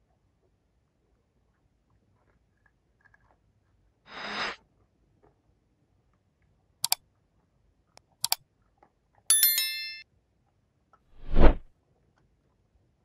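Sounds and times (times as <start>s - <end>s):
metallic ring: 9.3s - 10.0s.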